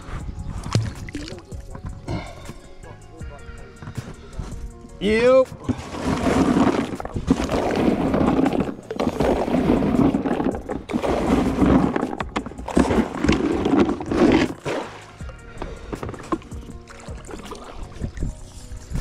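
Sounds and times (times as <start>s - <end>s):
bait splashing into water: 6.6s - 15.3s.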